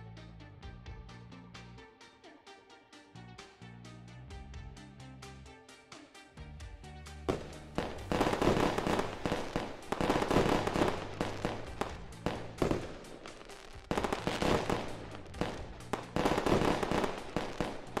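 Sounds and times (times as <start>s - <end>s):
fireworks banging and crackling: 7.3s - 18.0s.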